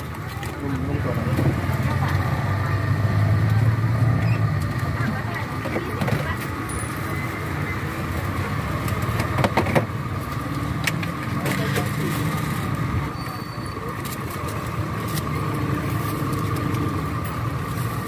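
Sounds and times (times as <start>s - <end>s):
low engine-like hum: 0.0s - 18.0s.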